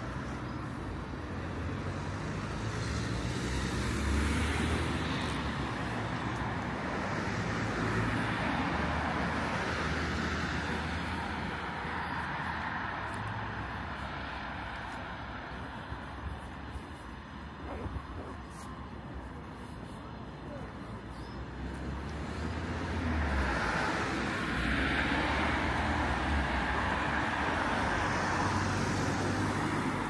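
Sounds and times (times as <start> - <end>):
cars passing: 0.0 - 30.0.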